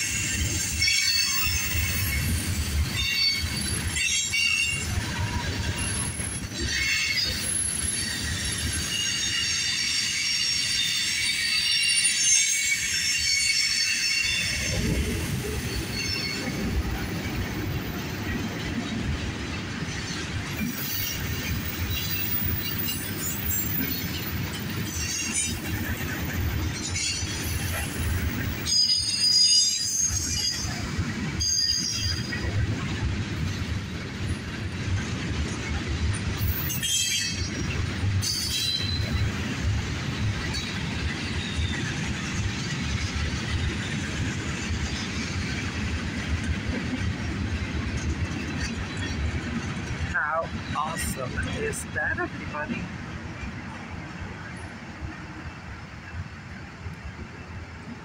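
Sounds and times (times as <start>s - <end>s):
train wheels squealing: 0.0s - 18.4s, 19.9s - 32.6s, 35.6s - 45.6s
train cars rolling on rails: 0.0s - 58.0s.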